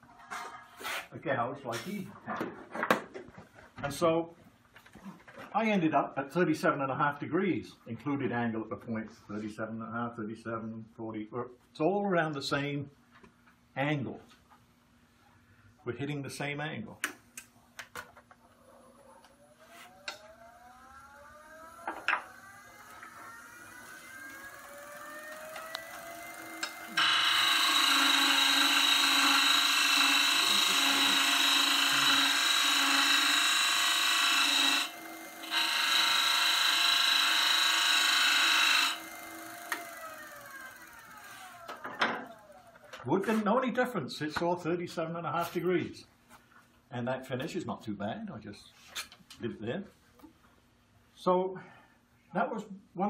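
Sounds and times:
wood lathe motor whine: 18.5 - 43.0
gouge scraping spinning wood: 22.5 - 41.7.

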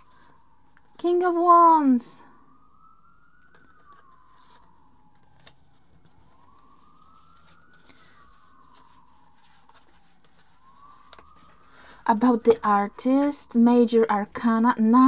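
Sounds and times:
emergency vehicle siren wailing: 0.0 - 15.0
cards being handled: 3.4 - 11.6.

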